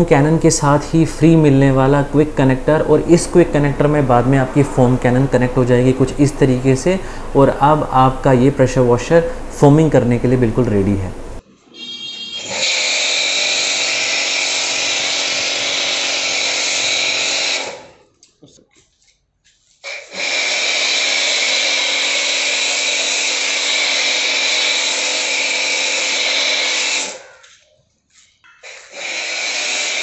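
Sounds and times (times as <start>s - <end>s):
pressure washer hum: 11.1s - 18.0s, 19.8s - 27.6s, 28.6s - 30.0s.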